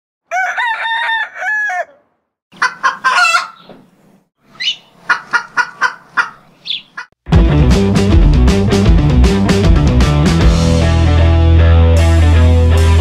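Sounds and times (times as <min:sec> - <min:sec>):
rooster crowing: 0:00.3 - 0:02.1, 0:02.7 - 0:03.6
chickens clucking: 0:01.2 - 0:03.9, 0:04.5 - 0:07.2.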